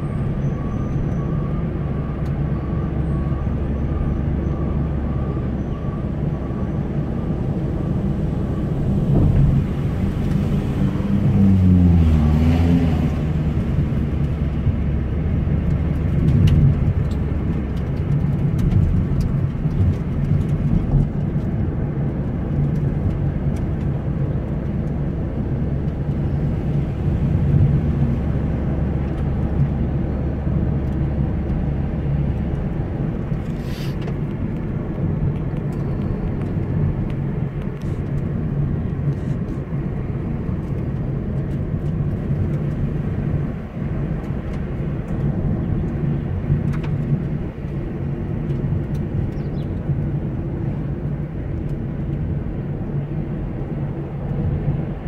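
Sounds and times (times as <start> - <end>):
car engine and road rumble: 0.0 - 55.0.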